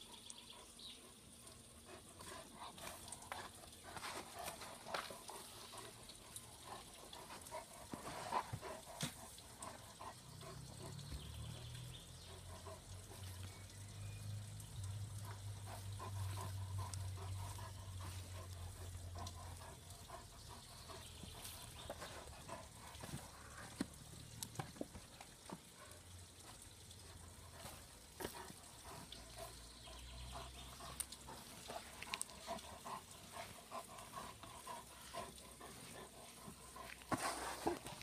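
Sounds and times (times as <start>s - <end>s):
clods and grit ticking: 0.0s - 38.0s
dog digging in soil: 35.7s - 38.0s.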